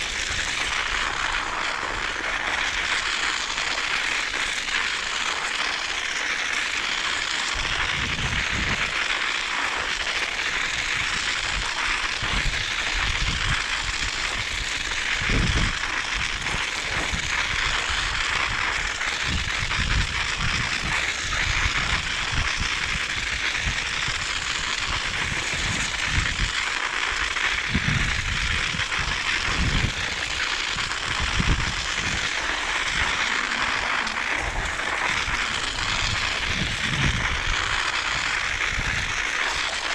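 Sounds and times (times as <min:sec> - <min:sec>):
bicycle tyres crackling over snow: 0:00.0 - 0:39.9
wind buffeting microphone: 0:07.6 - 0:09.0, 0:12.2 - 0:26.6, 0:27.6 - 0:39.3.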